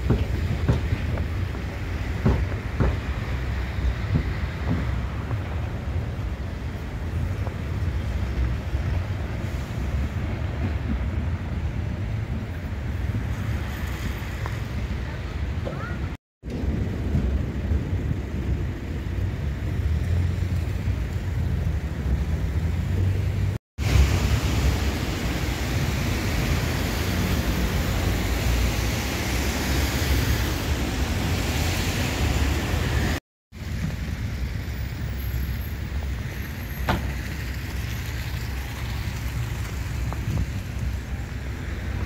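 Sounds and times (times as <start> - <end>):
traffic on wet road: 0.0 - 42.0
wind rumble on microphone: 37.0 - 42.0.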